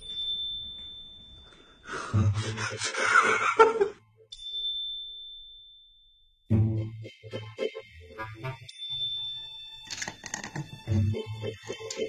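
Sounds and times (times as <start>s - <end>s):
high ringing ding: 0.0s - 1.7s, 4.4s - 6.3s
person gasping and laughing: 1.9s - 3.9s.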